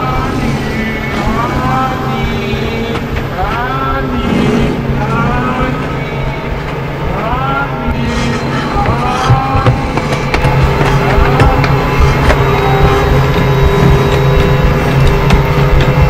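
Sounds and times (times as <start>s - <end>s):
low drone: 0.0s - 16.0s.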